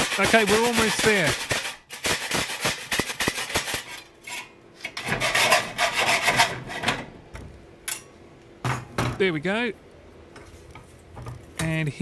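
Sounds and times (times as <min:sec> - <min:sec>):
hacksaw cutting metal: 0:00.0 - 0:06.9.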